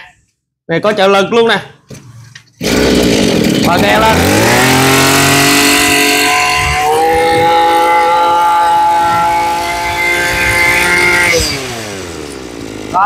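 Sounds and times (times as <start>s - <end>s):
brush cutter engine revving: 2.6s - 13.0s.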